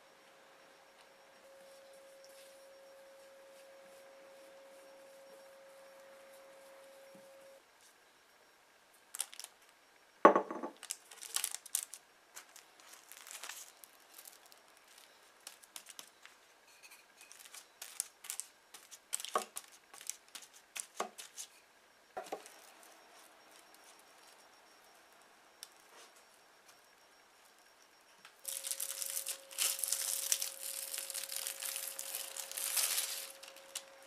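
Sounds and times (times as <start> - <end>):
cling film crinkling: 9.1 - 9.7, 10.8 - 16.4, 17.2 - 21.5, 28.4 - 34.0
rolling pin rustle: 10.8 - 16.3, 28.4 - 34.0.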